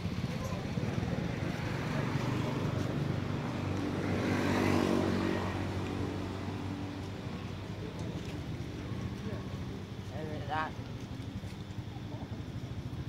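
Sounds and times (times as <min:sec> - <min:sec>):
vehicle engine passing by: 0:00.0 - 0:08.5.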